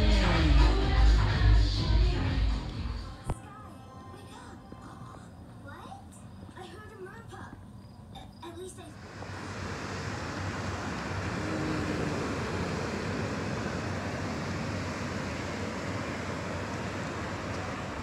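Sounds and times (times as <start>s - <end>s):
wind: 8.9s - 18.0s
ocean surf: 9.0s - 18.0s.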